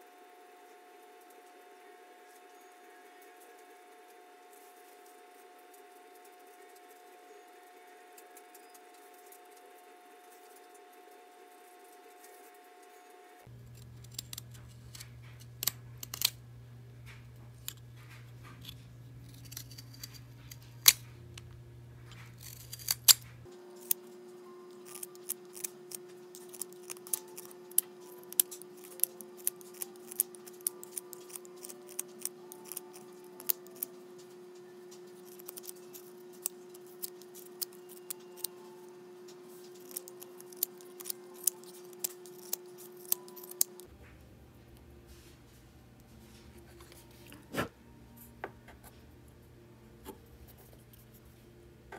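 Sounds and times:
knife shaving wood: 0:03.2 - 0:16.3, 0:17.7 - 0:21.0, 0:22.1 - 0:24.1, 0:24.7 - 0:43.9.

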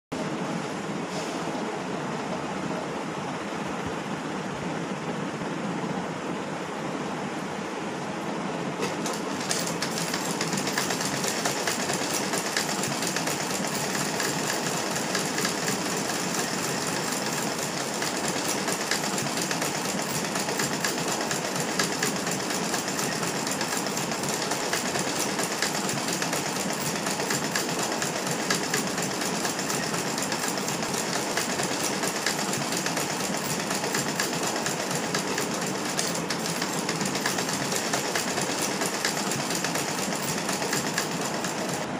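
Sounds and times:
sewing machine stitching: 0:08.8 - 0:41.9.

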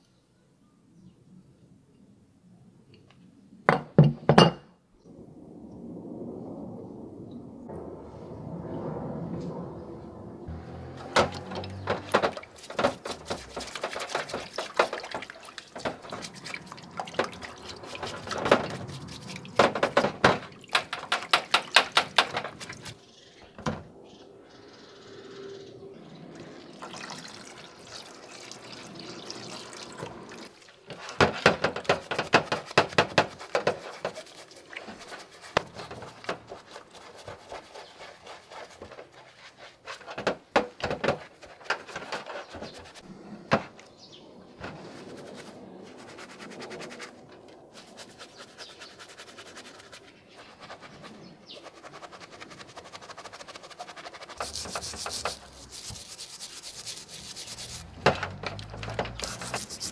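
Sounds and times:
water sloshing: 0:10.6 - 0:23.0, 0:26.3 - 0:39.8, 0:53.3 - 0:59.9
small brush scrubbing: 0:11.4 - 0:19.6, 0:31.8 - 0:40.2, 0:44.8 - 0:59.9
liquid squirted from squeeze bottle: 0:59.2 - 0:59.9.

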